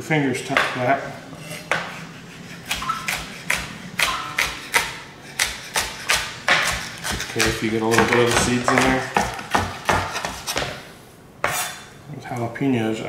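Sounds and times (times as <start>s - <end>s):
knife chopping on cutting board: 2.6s - 10.8s.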